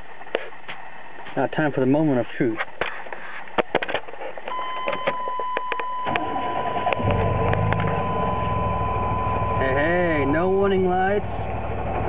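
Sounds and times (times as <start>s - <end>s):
steady warning tone: 4.5s - 11.4s
engine cranking and starting: 6.0s - 10.3s.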